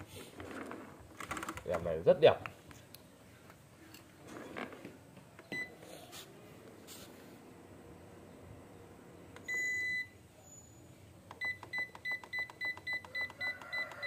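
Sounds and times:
control panel beeping: 11.3 - 14.0.

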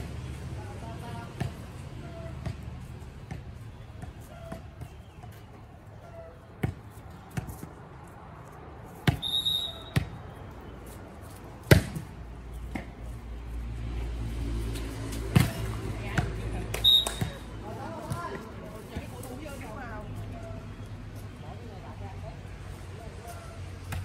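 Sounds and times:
short high whistle: 9.2 - 10.0
hand slapping volleyball: 15.1 - 19.1.

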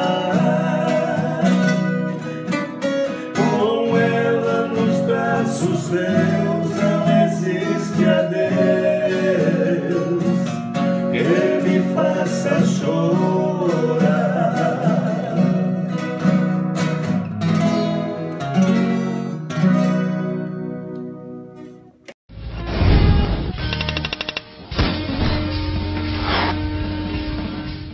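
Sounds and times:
two men singing a duet: 0.0 - 2.2, 3.1 - 16.1
acoustic guitars strummed and picked: 0.0 - 27.9.

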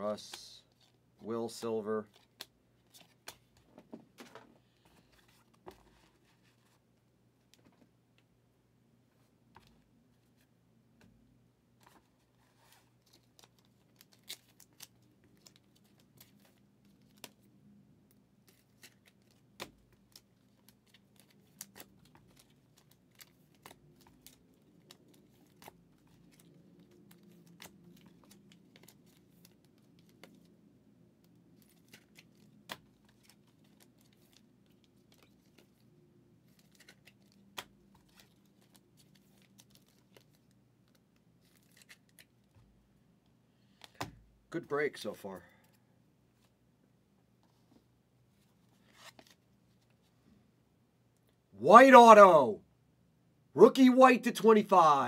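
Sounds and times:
trading cards clicking and rustling: 36.5 - 42.3.

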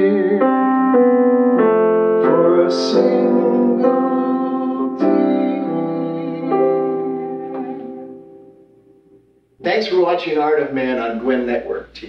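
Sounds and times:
piano playing slow chords: 0.0 - 9.6.

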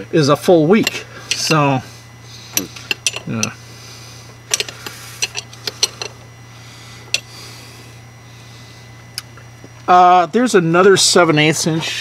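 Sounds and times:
wrench clinking on metal fittings: 0.8 - 1.7, 2.6 - 3.6, 4.5 - 6.2, 7.1 - 7.3.

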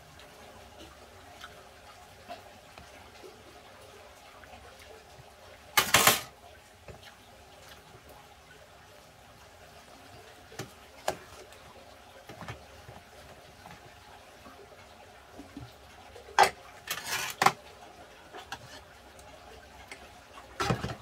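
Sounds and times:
kitchenware clicks and clinks: 5.8 - 6.3, 16.4 - 17.6.

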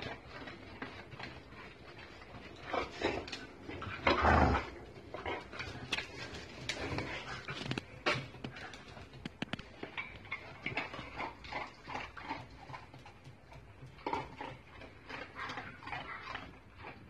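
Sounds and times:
dog noises: 0.0 - 17.0
dog claws clicking on tiles: 5.1 - 17.0.

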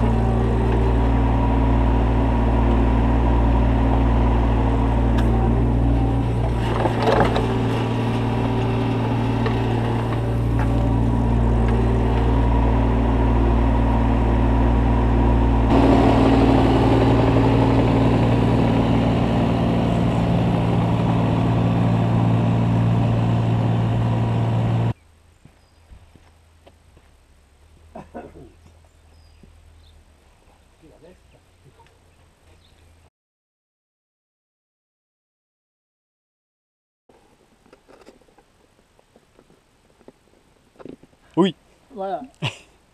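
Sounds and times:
excavator diesel engine running: 0.0 - 25.0.

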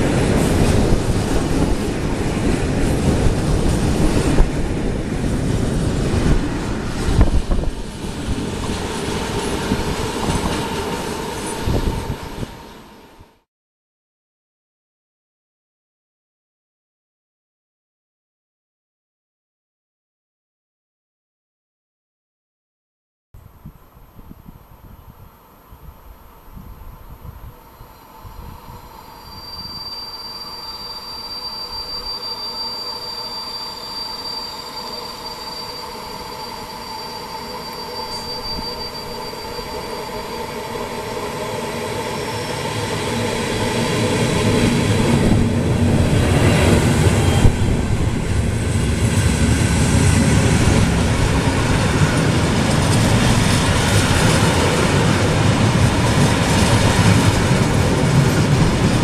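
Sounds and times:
train heavy rumbling: 0.0 - 13.1, 34.6 - 59.0
train high whine: 0.0 - 13.4, 24.9 - 59.0
wagons clattering on rails: 52.0 - 59.0.

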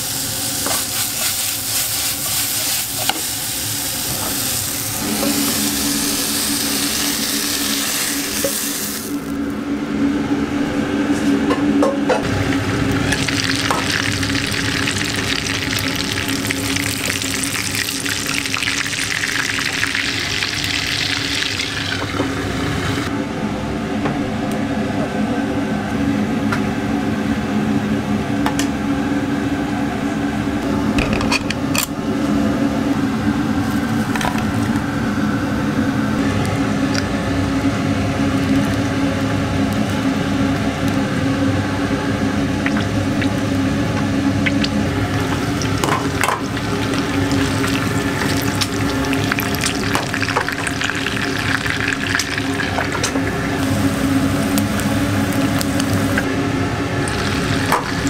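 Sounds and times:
egg sizzling in a pan: 0.0 - 9.4, 13.0 - 23.1, 44.5 - 56.2, 57.0 - 58.0
steady low hum: 0.0 - 58.0
oil popping: 44.4 - 56.3, 57.0 - 58.0.

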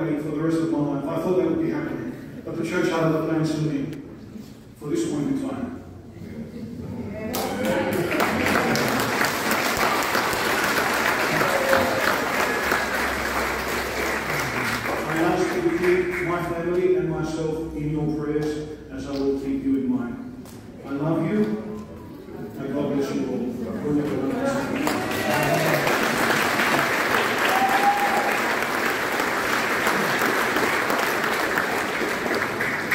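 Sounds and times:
voices among clapping: 7.3 - 16.2, 23.9 - 32.9
crowd applauding: 7.3 - 16.6, 23.9 - 32.9.

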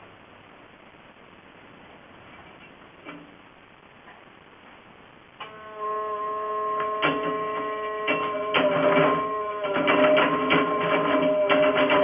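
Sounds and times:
braiding machine whining: 5.4 - 12.0.

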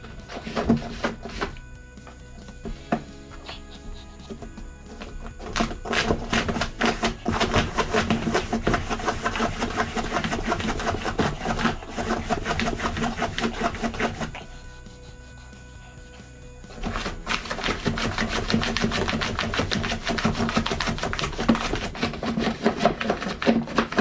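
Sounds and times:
dog scratching at towel and cardboard: 0.0 - 1.6, 3.4 - 14.4, 16.7 - 24.0
soft background music: 0.0 - 24.0.

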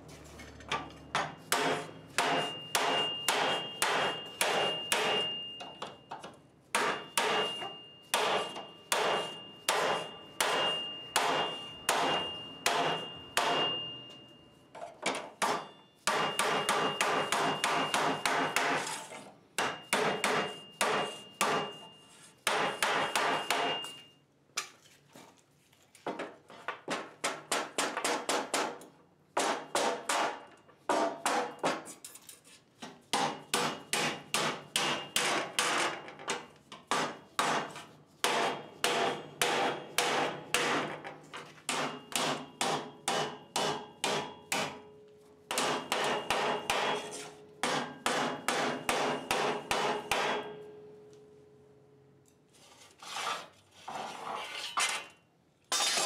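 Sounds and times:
sheet steel ringing: 2.2 - 5.8, 6.8 - 14.5.

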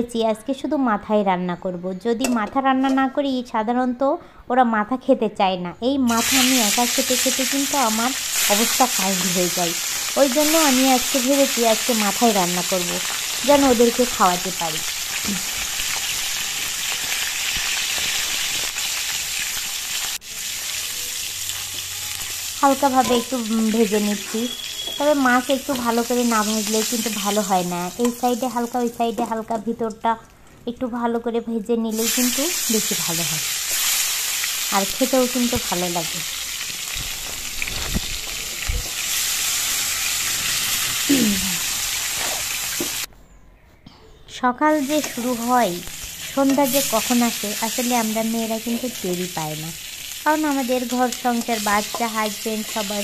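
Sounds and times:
fish frying in oil: 6.1 - 29.0, 44.8 - 53.0.

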